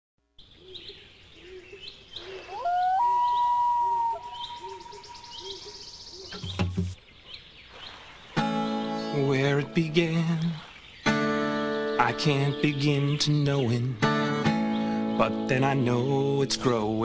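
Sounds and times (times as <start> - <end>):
bird chirps: 0.4 - 15.6
low bird call: 0.5 - 9.2
long whistled bird call: 0.6 - 6.5
dull knock: 6.4 - 7.0.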